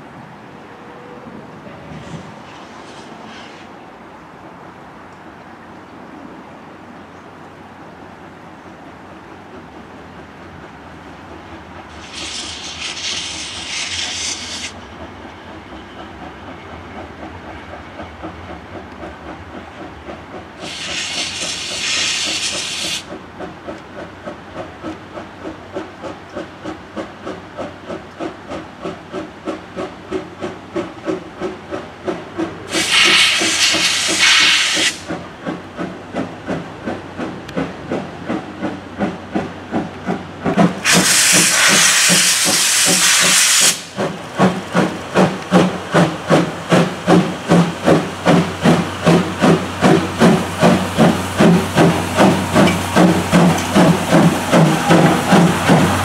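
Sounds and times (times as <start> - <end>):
steam locomotive chuffing: 9.0 - 56.0
steam hissing bursts: 11.9 - 14.8, 20.6 - 23.2, 32.6 - 35.3, 40.6 - 56.0.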